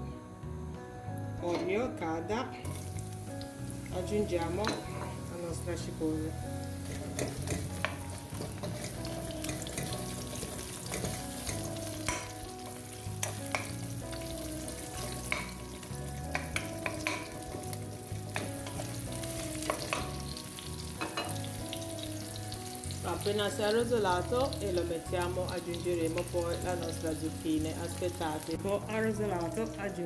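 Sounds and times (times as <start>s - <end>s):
onion sizzling in hot oil: 2.6s - 30.0s
spatula scraping a pan: 6.8s - 11.7s.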